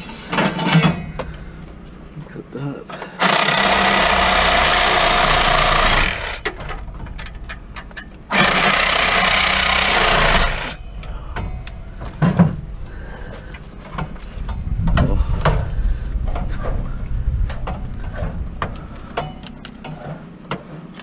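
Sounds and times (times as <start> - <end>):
clattering and knocks: 0.0 - 1.8, 6.4 - 21.0
reciprocating saw cutting: 3.2 - 6.6, 8.3 - 10.8.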